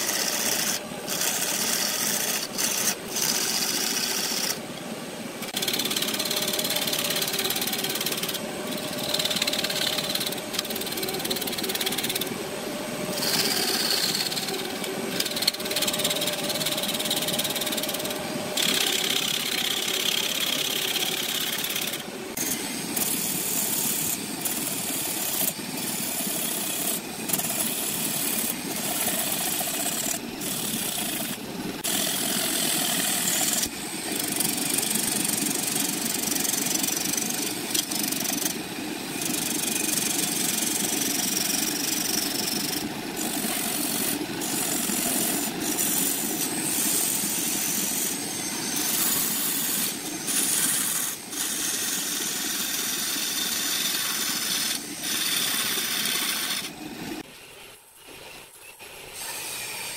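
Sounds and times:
turning tool scraping wood: 0.0 - 4.6, 13.0 - 56.7
wood lathe humming: 0.0 - 4.6, 5.4 - 23.8, 24.4 - 56.7.

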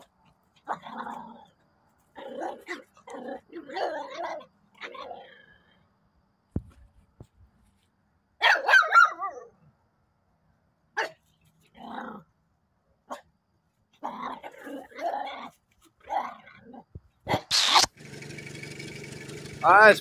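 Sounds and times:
small dog barking and growling: 0.6 - 5.6, 8.4 - 9.6, 11.0 - 12.3, 13.1 - 13.3, 14.0 - 17.9
high wavering dog yips: 2.2 - 5.2, 8.4 - 9.6.

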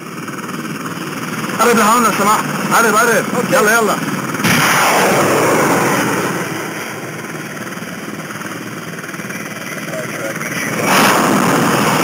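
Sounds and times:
steady rumbling: 0.0 - 12.0
loud rocket whoosh: 4.4 - 7.3, 10.8 - 12.0.

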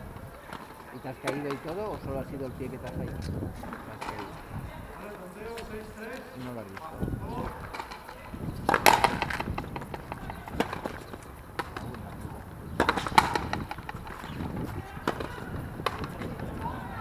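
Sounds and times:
shoes running and scuffing: 0.0 - 17.0
ball struck by rackets: 7.6 - 16.7
ball smacking against wall: 8.7 - 11.0.

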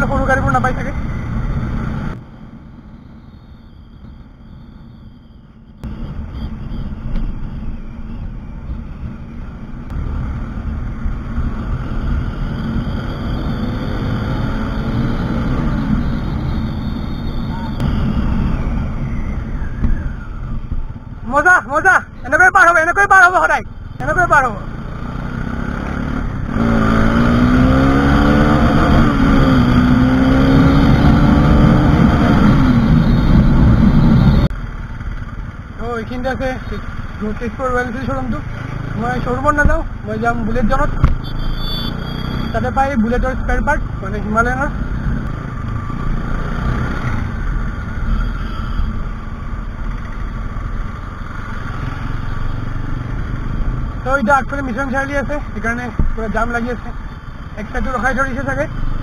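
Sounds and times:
road and wind rush: 0.0 - 59.0
motorcycle engine at speed: 24.5 - 35.8, 38.0 - 42.6, 43.7 - 54.2.

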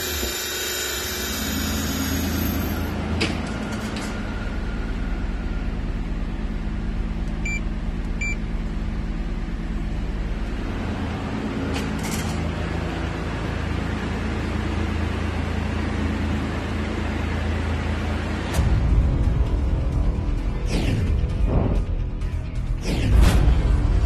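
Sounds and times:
car engine idling: 1.3 - 18.4
short electronic beeps: 7.4 - 8.4.

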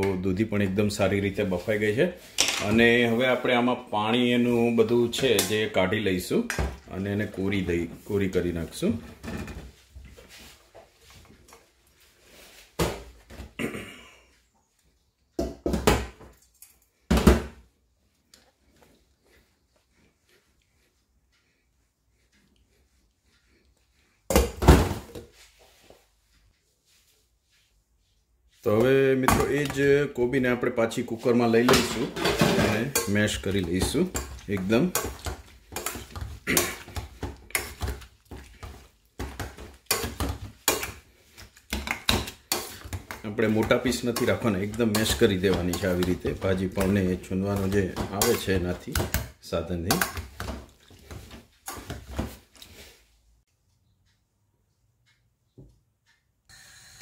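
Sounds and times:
metal masher knocking in pot: 31.6 - 38.0, 41.7 - 49.3.

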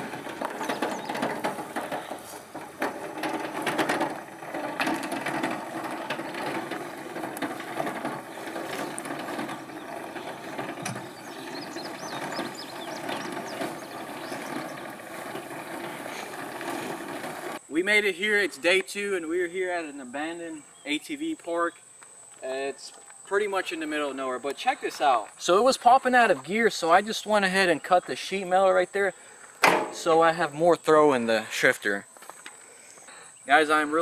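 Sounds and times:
wheels clicking rattle over grass: 0.0 - 17.6.

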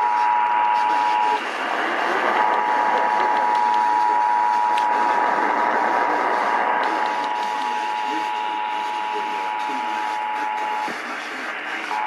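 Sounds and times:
radio static hiss: 0.0 - 12.0.

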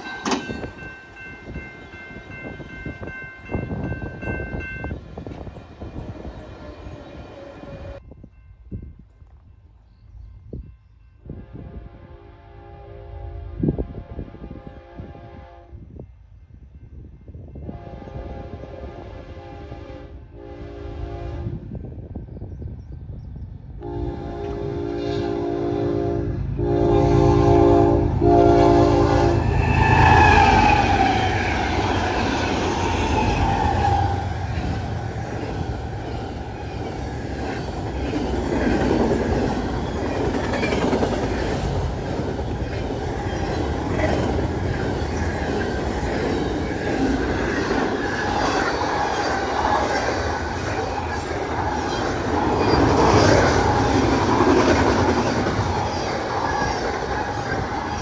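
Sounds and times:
passing train rumble and wheel clatter: 0.0 - 58.0
train horn blasts: 11.2 - 16.0, 17.5 - 21.8, 23.8 - 32.0.

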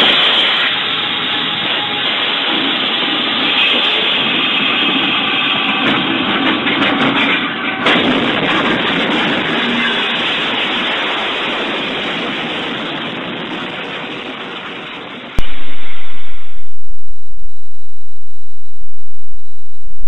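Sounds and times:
train crash bang: 5.9 - 11.6.

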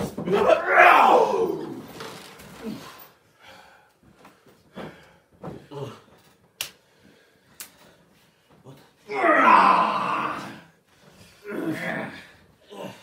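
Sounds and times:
man groaning and breathing heavily: 8.6 - 13.0.

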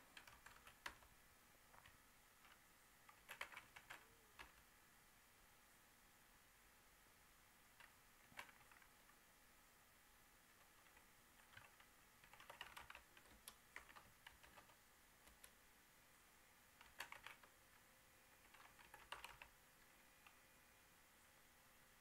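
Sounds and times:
typing on keyboard: 0.1 - 1.1, 1.8 - 4.6, 7.7 - 9.0, 10.6 - 15.6, 16.8 - 17.6, 18.4 - 19.6.

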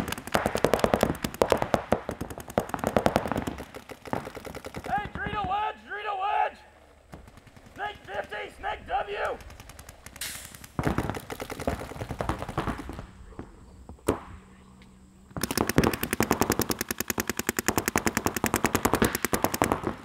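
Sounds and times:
paintball markers firing: 0.0 - 5.7, 7.1 - 8.4, 9.1 - 13.3, 15.3 - 20.0.

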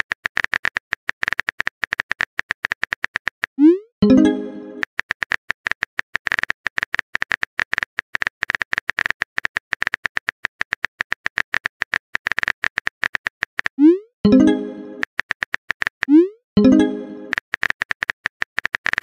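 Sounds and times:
message alert chime: 4.0 - 4.8, 14.3 - 15.0, 16.6 - 17.3
rapid typing clicks: 15.0 - 16.1, 17.3 - 19.0.

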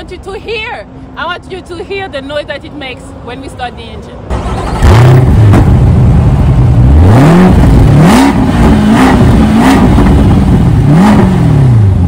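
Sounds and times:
car engine starting and revving: 4.2 - 12.0.

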